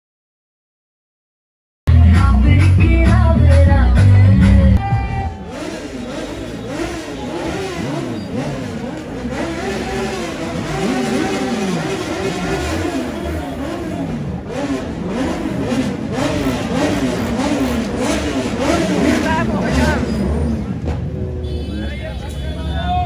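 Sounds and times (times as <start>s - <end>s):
crowd voices: 1.9s - 23.0s
motorcycle engine revving: 5.2s - 21.7s.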